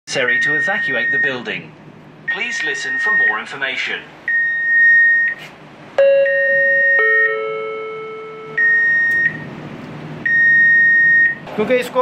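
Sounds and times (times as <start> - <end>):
descending two-note chime: 6.0 - 8.6
high electronic beep: 6.0 - 9.5.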